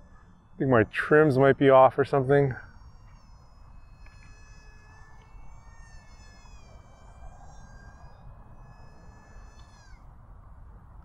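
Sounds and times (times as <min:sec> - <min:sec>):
small electric motor whine: 0:00.0 - 0:11.0
wind rumble on microphone: 0:02.3 - 0:11.0.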